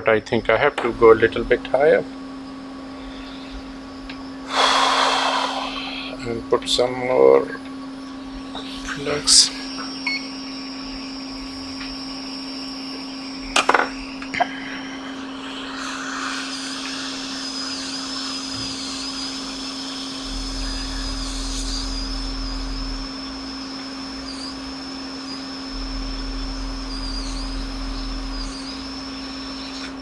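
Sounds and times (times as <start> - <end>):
high fan whine: 0.0 - 30.0
hot air blower hissing: 0.4 - 30.0.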